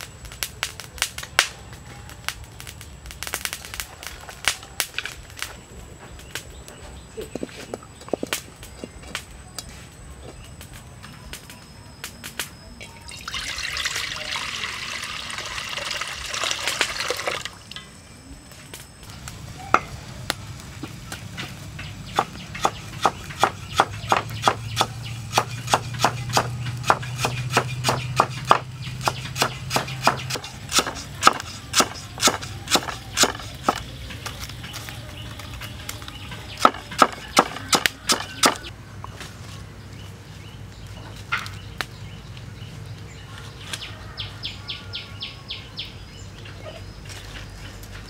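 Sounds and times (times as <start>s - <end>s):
water splashing into a wok: 12.9s - 17.8s
cleaver chopping on wooden block: 22.1s - 33.9s, 36.6s - 38.7s.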